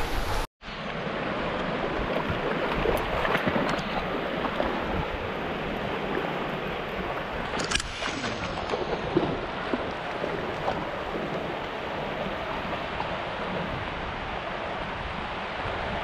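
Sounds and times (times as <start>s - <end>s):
waves washing over sand: 0.0s - 16.0s
sharp splash: 1.9s - 5.1s, 7.0s - 11.7s
dog splashing in water: 1.9s - 5.2s.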